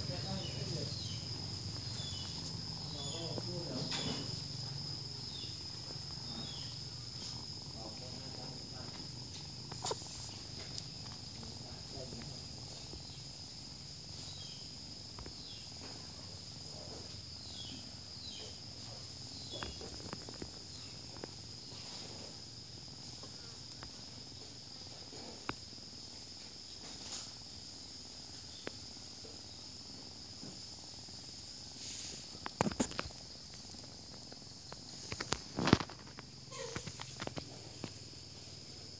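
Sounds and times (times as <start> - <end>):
insects trilling: 0.0 - 38.9.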